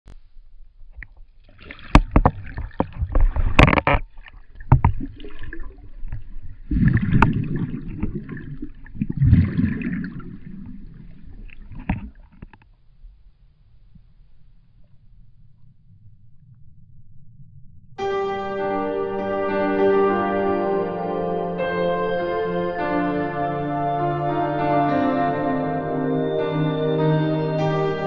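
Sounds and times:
water rushing and gurgling underwater: 0.4 - 17.7.

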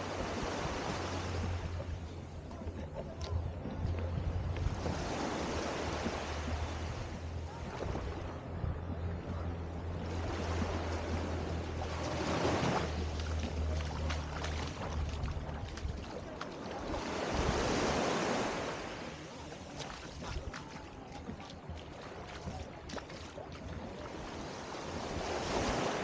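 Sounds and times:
small waves washing on beach: 0.0 - 26.0.

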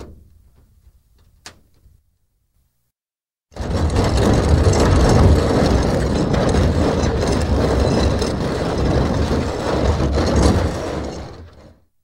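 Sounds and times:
steel barrel rolling on floor: 3.5 - 11.9.

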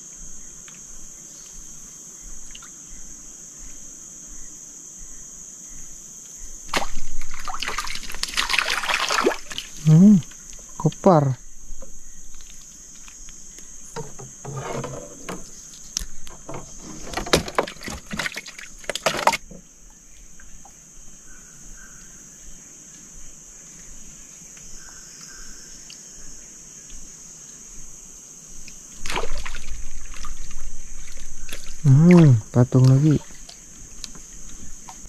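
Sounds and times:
high-pitched insect chorus: 0.0 - 35.0
water noise: 6.6 - 13.1, 13.8 - 20.8, 28.9 - 35.0
splashing and knocking: 6.7 - 9.8, 13.9 - 19.6, 29.0 - 35.0.

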